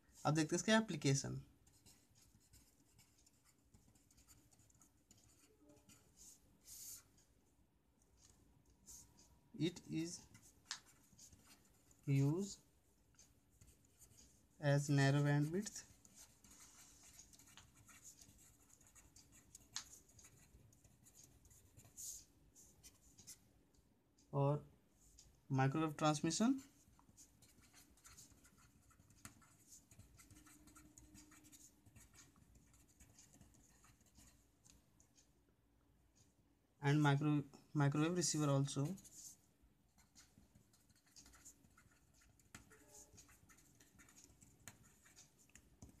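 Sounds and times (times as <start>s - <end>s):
marker scratching on paper: 1.5s - 7.2s, 8.2s - 23.4s, 26.0s - 34.8s, 38.4s - 46.0s.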